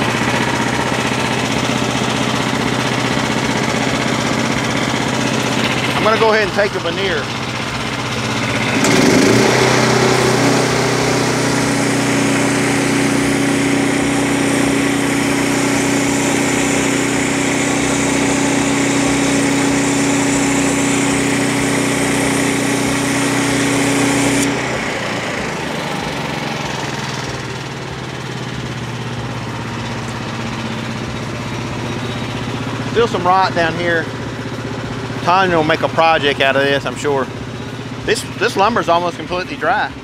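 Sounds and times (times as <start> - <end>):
small gasoline engine running: 0.0 - 40.0
band saw blade cutting wood: 8.5 - 24.8.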